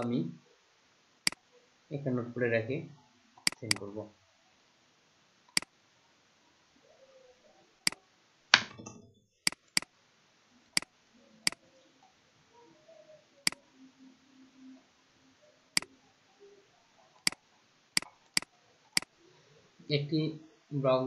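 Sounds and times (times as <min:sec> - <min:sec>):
computer mouse button clicking: 0:03.5 - 0:03.8.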